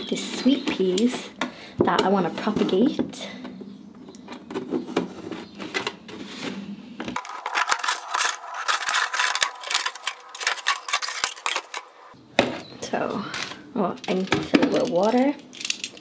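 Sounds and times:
scissors cutting plastic: 7.2s - 12.0s.

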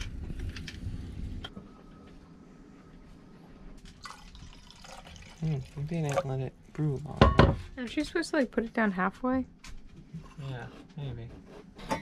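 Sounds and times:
coffee pouring into metal cup: 3.9s - 6.5s.

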